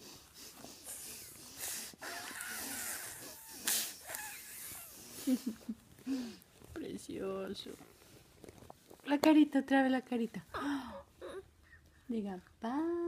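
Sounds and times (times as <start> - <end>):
toddler puffing and blowing: 0.0 - 5.3.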